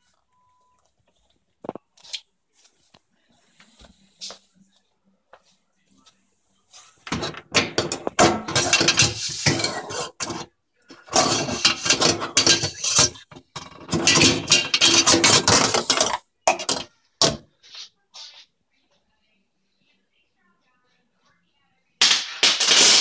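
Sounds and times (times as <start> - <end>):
dishes and racks clattering: 7.0 - 17.5, 22.0 - 23.0.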